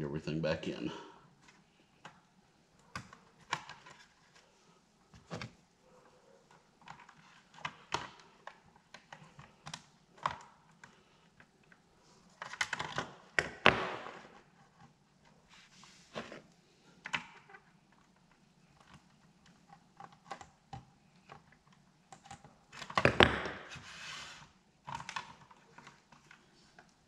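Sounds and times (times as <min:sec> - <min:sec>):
plastic parts clicking and knocking: 0:01.4 - 0:04.5, 0:06.5 - 0:15.4, 0:17.0 - 0:23.8, 0:24.8 - 0:27.0.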